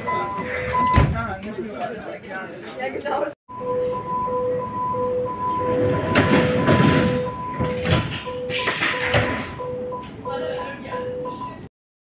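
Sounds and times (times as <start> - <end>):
two-tone door warning beep: 0.0 - 1.2, 3.5 - 11.7
sliding doors closing: 5.2 - 10.2.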